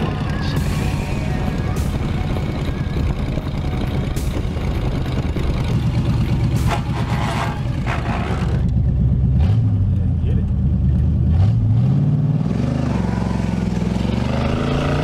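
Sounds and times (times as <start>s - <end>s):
car engine running: 0.0s - 11.8s
road noise: 0.0s - 15.0s.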